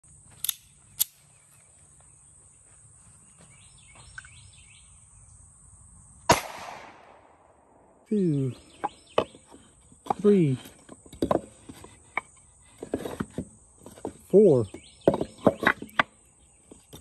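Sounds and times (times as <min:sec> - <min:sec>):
pistol shot with echo: 0:06.3 - 0:08.0.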